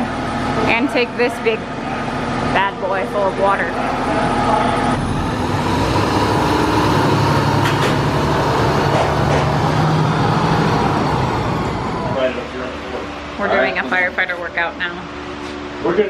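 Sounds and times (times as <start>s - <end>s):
truck diesel engine pulling away: 3.9s - 13.0s.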